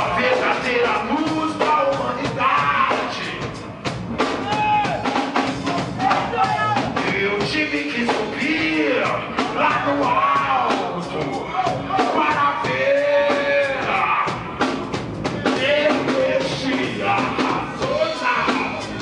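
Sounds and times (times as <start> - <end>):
man singing: 0.0 - 3.6, 6.1 - 14.6, 15.3 - 19.0
drum kit beat: 0.0 - 19.0
reggae band playing: 0.0 - 19.0.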